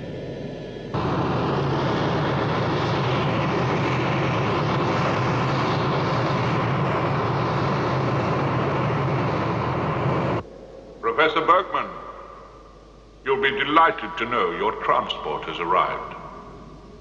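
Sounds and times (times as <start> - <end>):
low hum: 0.0 - 17.0
spacecraft engines rushing: 0.9 - 10.4.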